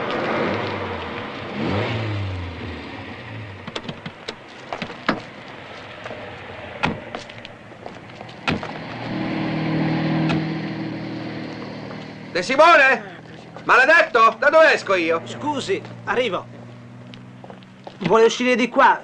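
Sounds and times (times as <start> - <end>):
car driving up and stopping: 0.0 - 18.1
lorry passing: 0.0 - 18.2
low engine hum: 0.0 - 18.2
car doors clicking and knocking: 3.6 - 5.3, 6.8 - 7.3, 8.4 - 8.8.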